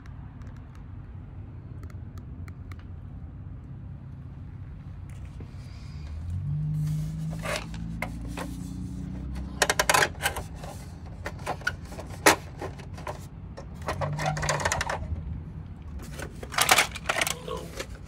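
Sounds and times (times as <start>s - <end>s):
plastic toy clicks and knocks: 9.4s - 10.6s, 11.2s - 15.2s, 16.1s - 17.9s.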